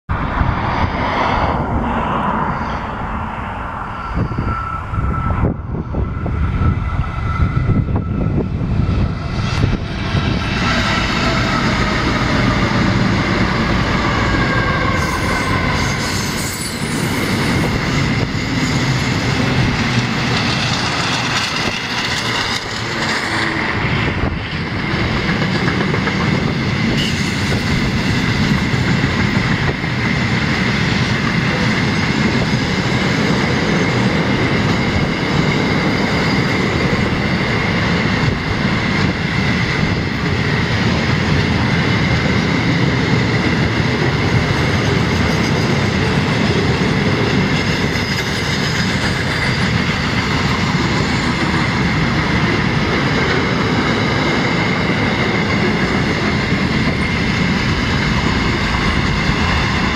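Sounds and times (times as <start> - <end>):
diesel locomotives rumbling: 0.1 - 59.9
high wheel squeal: 2.3 - 23.9, 47.6 - 52.0.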